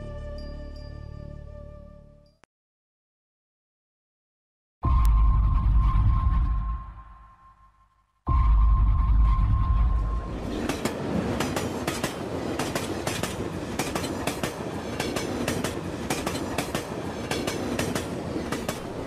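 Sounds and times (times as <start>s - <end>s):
train running on rails: 8.4s - 19.0s.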